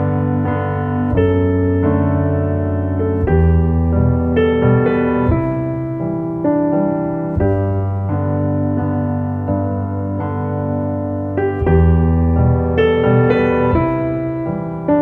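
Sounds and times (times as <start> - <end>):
slow piano music: 0.0 - 15.0.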